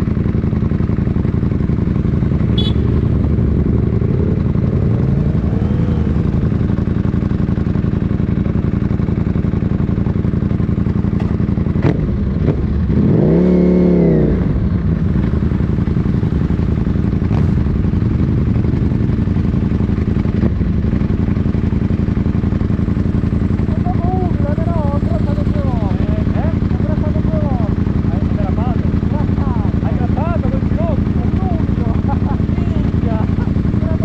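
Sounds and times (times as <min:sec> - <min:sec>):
motorcycle engine idling: 0:00.0 - 0:34.0
motorcycle throttle blip: 0:02.4 - 0:03.2.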